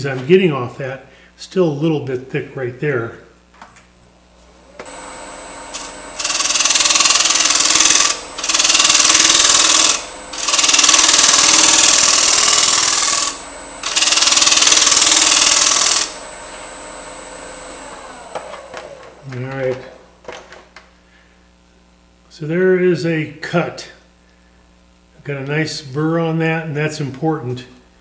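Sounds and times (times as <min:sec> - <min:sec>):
wood lathe whine: 0:04.3 - 0:20.4.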